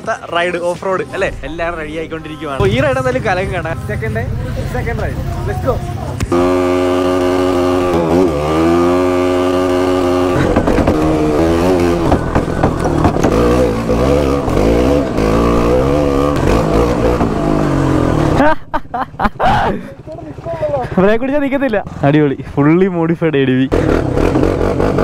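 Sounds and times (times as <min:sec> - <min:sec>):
motorcycle engine revving: 0:00.0 - 0:18.7, 0:19.8 - 0:25.0.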